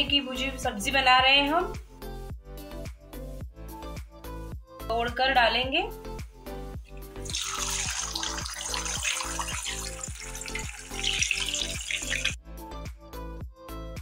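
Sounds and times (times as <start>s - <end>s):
background music with steady beat: 0.0s - 14.0s
eggs sizzling in hot oil: 7.0s - 12.4s.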